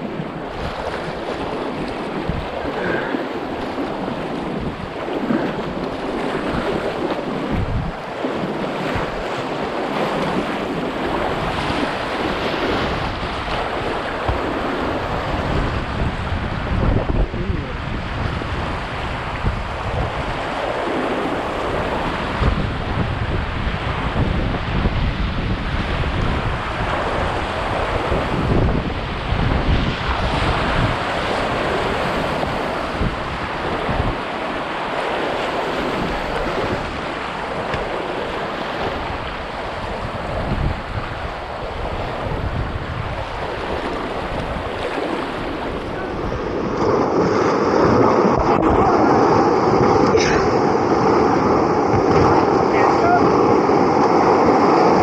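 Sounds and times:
wind buffeting microphone: 0.0s - 55.0s
whitewater rapids rushing: 30.0s - 55.0s.

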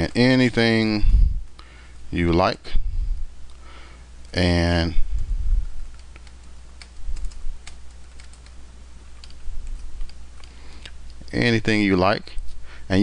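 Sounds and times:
keyboard keys clicking: 5.9s - 8.6s, 9.2s - 10.5s.

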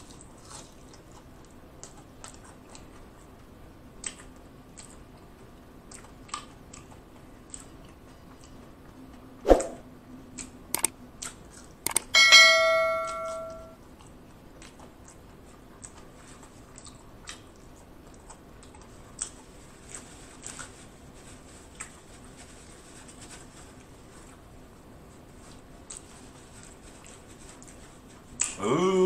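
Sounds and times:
faint chewing clicks: 0.0s - 9.3s, 10.2s - 12.1s, 13.8s - 22.2s, 25.1s - 28.6s
clicks: 11.9s - 12.1s
notification bell ding: 12.2s - 13.8s.

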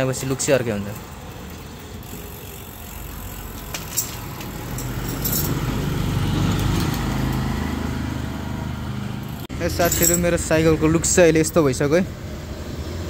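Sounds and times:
vehicle engine passing by: 4.6s - 9.6s.

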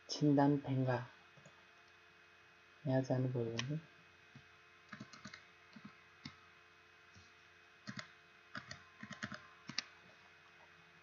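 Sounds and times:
computer keyboard and mouse clicks: 4.9s - 6.4s, 7.8s - 9.9s.

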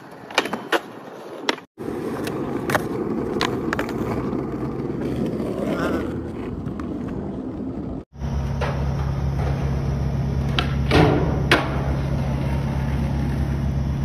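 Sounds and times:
skateboard clacking on concrete: 0.0s - 7.2s
steady low hum: 8.1s - 14.0s.

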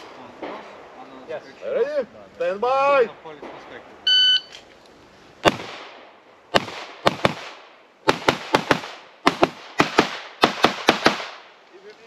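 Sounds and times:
pistol shots with echo: 5.4s - 11.5s.

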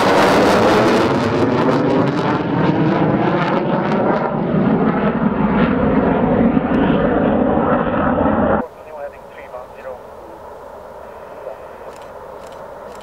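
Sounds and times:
jet engine roar: 0.0s - 13.0s.

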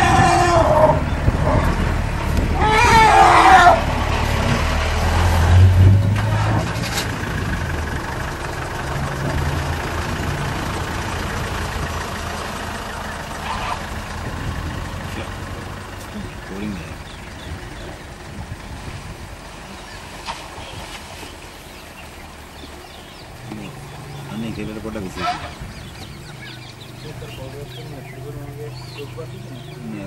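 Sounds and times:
elephant trumpeting: 0.0s - 1.9s, 2.5s - 4.3s, 13.4s - 14.0s, 25.1s - 28.2s
vehicle engine idling: 0.0s - 20.8s, 21.5s - 30.0s.

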